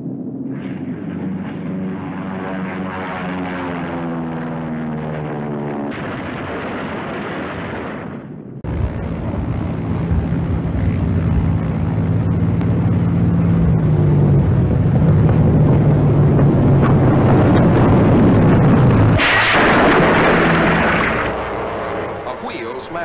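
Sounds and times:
propeller plane engine droning: 0:00.0 - 0:07.6, 0:08.2 - 0:23.0
plane crashing and scraping on deck: 0:19.2 - 0:22.2.

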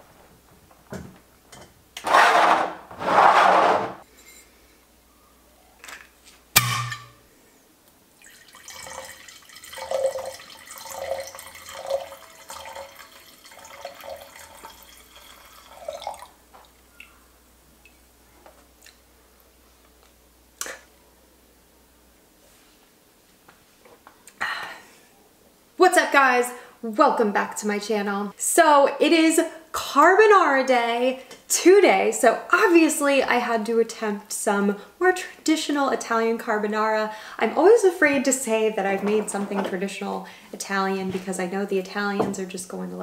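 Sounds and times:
sharp knock: 0:06.6 - 0:07.2
wine glugging into a glass: 0:08.2 - 0:16.3.

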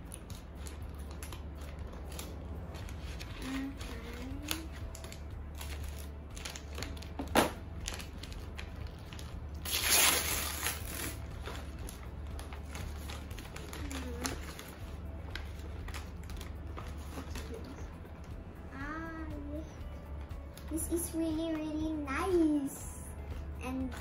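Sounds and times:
wrapping paper rustling: 0:00.0 - 0:18.2
steady low hum: 0:00.0 - 0:24.0
paper tearing: 0:09.6 - 0:14.8.

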